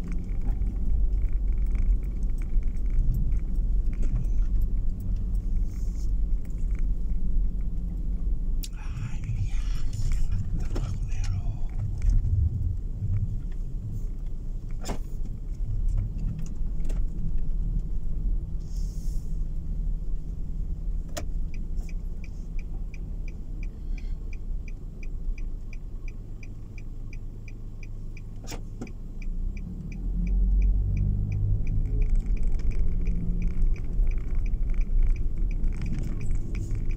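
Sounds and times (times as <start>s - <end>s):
turn signal clicking: 0.0s - 18.7s, 19.3s - 36.9s
engine and tyre rumble: 0.0s - 36.9s.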